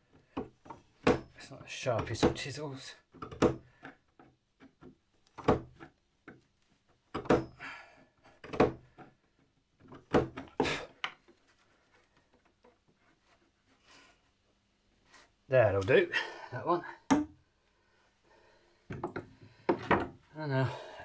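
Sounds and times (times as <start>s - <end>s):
chisel knocking into wood: 17.1s - 17.4s.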